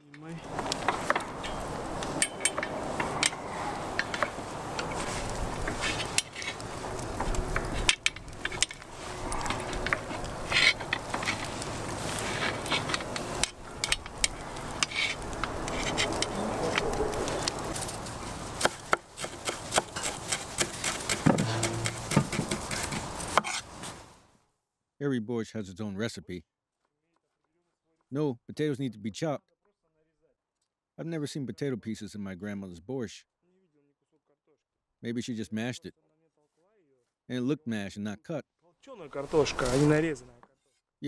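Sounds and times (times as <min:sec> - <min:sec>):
meat sizzling over charcoal: 0:00.4 - 0:24.2, 0:39.2 - 0:40.2.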